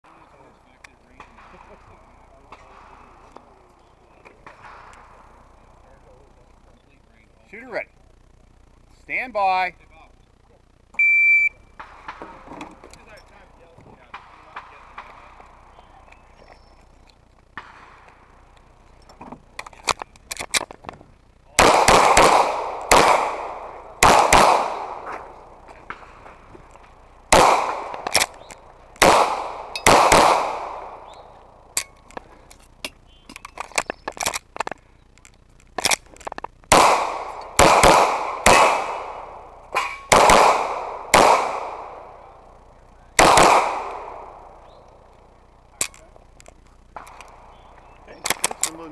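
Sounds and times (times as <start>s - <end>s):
pistol shots with echo: 11.8s - 12.5s, 14.1s - 16.2s, 21.6s - 32.0s, 36.7s - 45.2s
faint clicks and pops: 30.6s - 36.8s, 43.8s - 48.8s.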